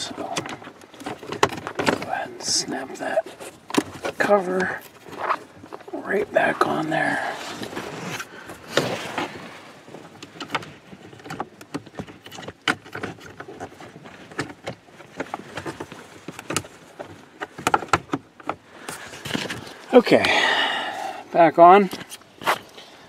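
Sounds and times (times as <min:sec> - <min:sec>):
rustling: 0:00.0 - 0:20.6
plastic clicks and knocks: 0:00.2 - 0:02.1, 0:10.2 - 0:18.6.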